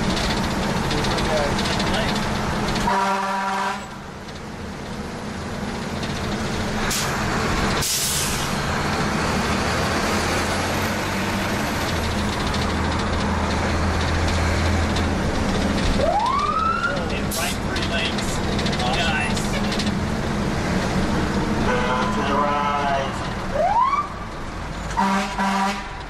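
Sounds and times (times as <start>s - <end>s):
diesel engine running: 0.0s - 26.0s
horn blast: 2.9s - 3.9s, 25.0s - 26.0s
air brake hisses: 7.8s - 8.5s.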